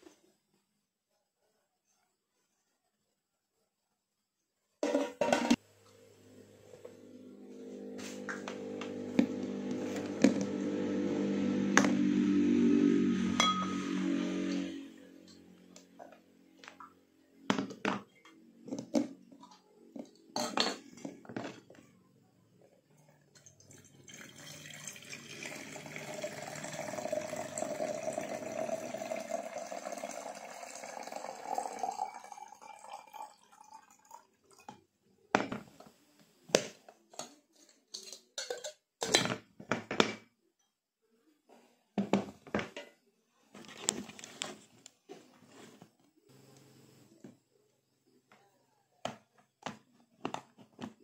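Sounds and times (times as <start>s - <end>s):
water pouring into kettle: 23.4s - 34.7s.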